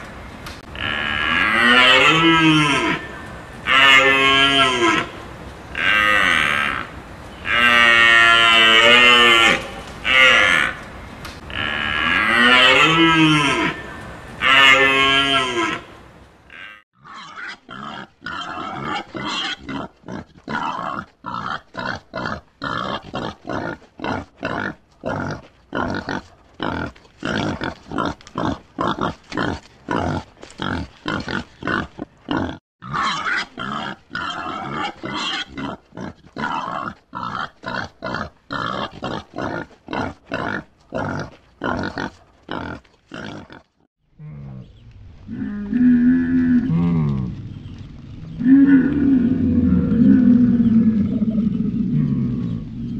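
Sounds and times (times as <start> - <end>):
warthog grunting: 45.3 - 47.8.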